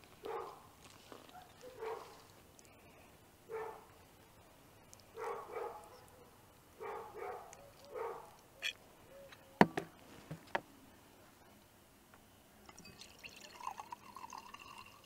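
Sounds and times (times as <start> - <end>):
dog barking: 0.2 - 2.3, 3.5 - 3.9, 5.1 - 8.4.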